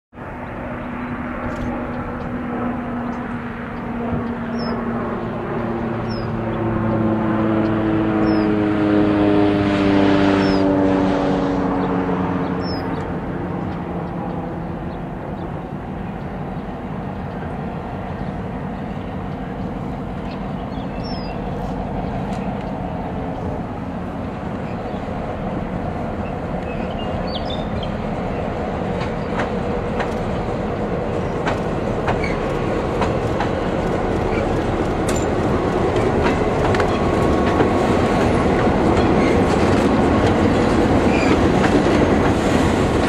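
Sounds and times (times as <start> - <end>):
airplane engine drone: 0.1 - 43.0
bird chirps: 12.6 - 13.0, 20.2 - 22.5, 26.2 - 28.0.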